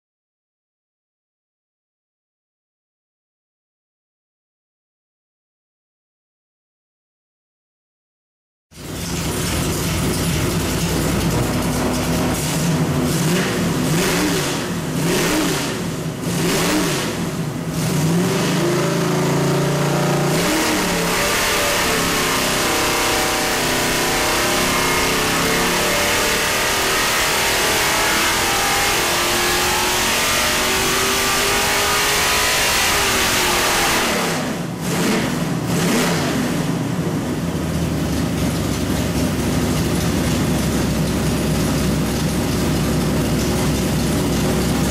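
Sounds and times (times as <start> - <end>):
engine revving on a dyno: 8.8 - 37.8, 40.5 - 44.9.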